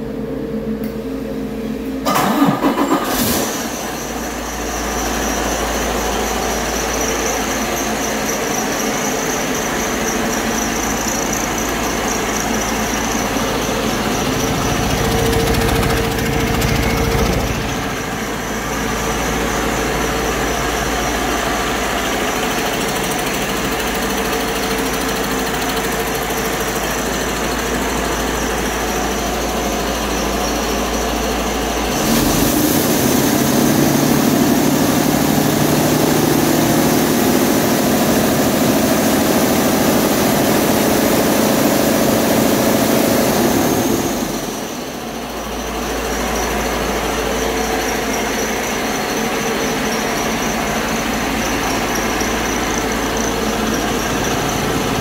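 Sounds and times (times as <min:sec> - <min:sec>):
diesel truck engine idling: 0:00.0 - 0:55.0
diesel engine revving higher: 0:31.9 - 0:44.7.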